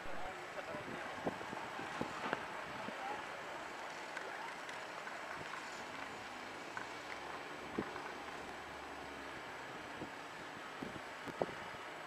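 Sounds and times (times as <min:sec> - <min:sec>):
wind on microphone: 0:00.8 - 0:03.0, 0:09.9 - 0:11.8.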